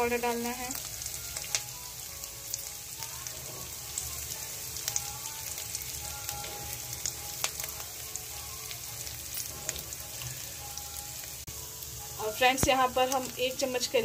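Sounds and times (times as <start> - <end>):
spices sizzling in hot oil: 0.0 - 14.0
oil popping and crackling: 0.1 - 11.5, 12.2 - 14.0.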